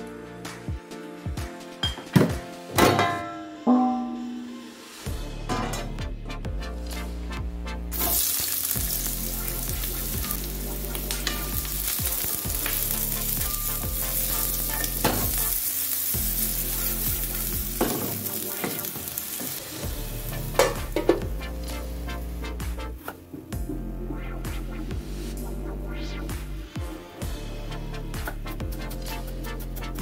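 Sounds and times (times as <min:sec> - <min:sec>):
onions sizzling in oil: 0:07.9 - 0:22.4.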